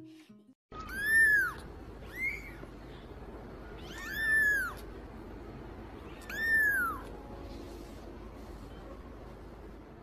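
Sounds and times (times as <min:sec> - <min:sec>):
kitten mewing: 0:00.8 - 0:02.7, 0:03.8 - 0:04.9, 0:06.0 - 0:07.1.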